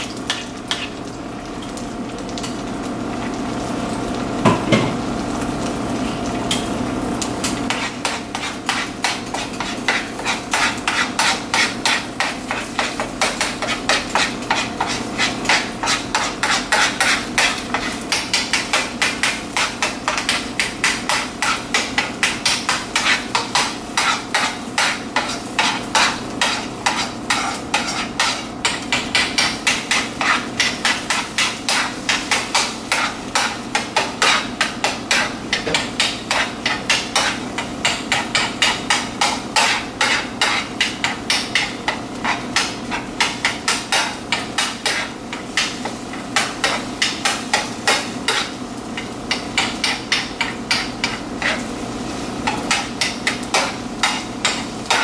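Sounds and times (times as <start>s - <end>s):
fork scraping frying pan: 7.6s - 55.0s.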